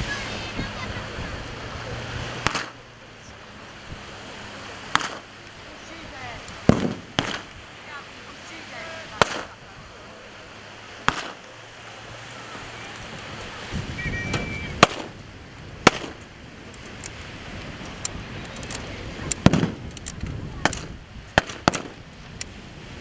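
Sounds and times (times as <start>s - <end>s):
blank gunshots: 2.4s - 2.8s, 4.9s - 5.3s, 6.7s - 7.5s, 9.2s - 9.6s, 11.1s - 11.4s, 14.8s - 15.2s, 15.8s - 16.2s, 19.4s - 19.8s, 20.6s - 22.0s.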